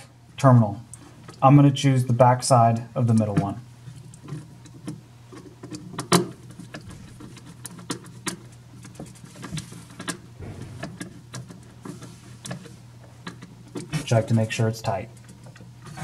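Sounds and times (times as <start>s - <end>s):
steady low hum: 10.2s - 12.5s.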